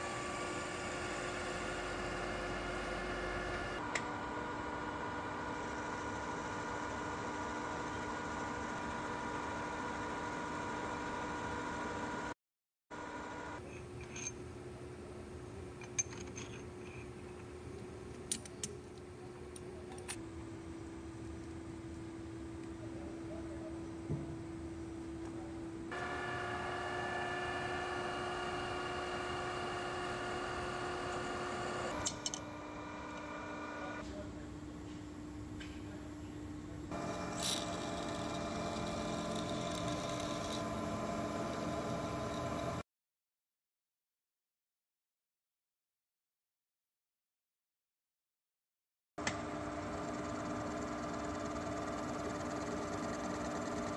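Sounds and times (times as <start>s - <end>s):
metal lathe humming: 25.9s - 34.0s, 36.9s - 42.8s, 49.3s - 53.9s.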